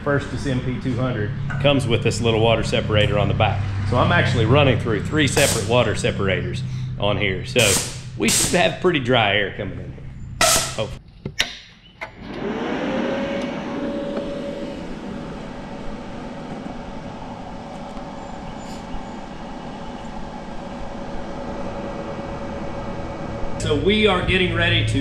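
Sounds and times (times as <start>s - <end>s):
cooling fan humming: 0.0s - 11.0s, 12.0s - 25.0s.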